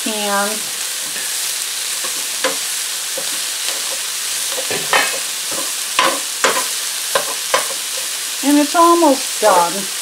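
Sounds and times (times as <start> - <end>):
food sizzling in a frying pan: 0.0 - 10.0
metal spoon scraping a pan: 2.0 - 8.2.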